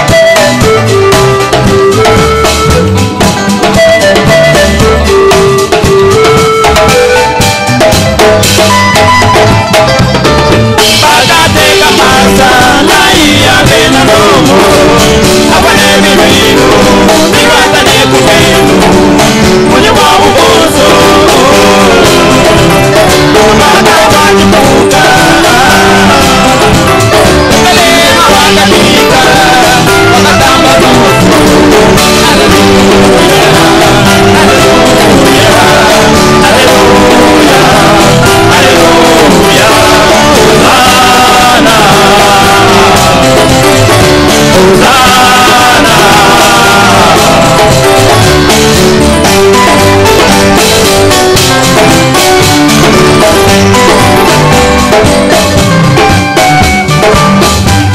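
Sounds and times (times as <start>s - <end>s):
live band playing: 0.0s - 57.9s
men singing together: 10.8s - 56.1s.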